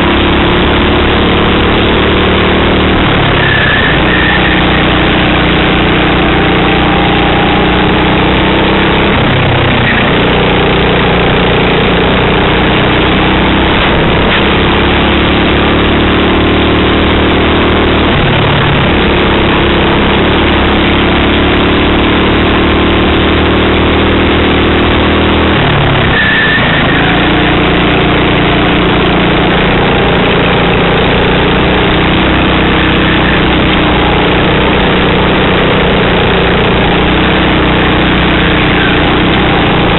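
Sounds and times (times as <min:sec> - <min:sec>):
kart engine at high revs: 0:00.0 - 0:39.9.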